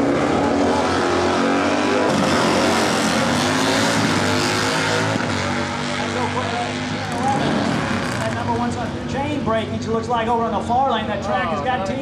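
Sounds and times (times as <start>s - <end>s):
motorcycle engines revving: 0.0s - 12.0s.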